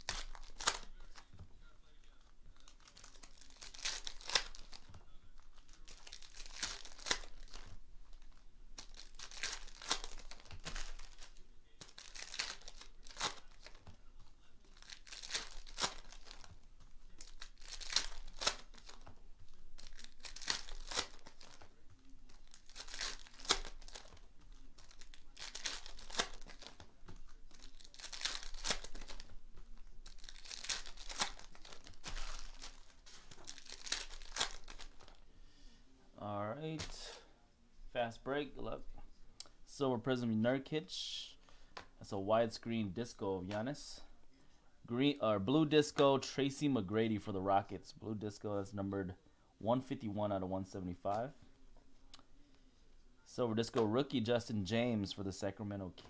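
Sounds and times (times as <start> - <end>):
foil wrappers tearing and crinkling: 0.0 - 1.3, 2.5 - 5.0, 5.6 - 13.9, 14.6 - 35.2.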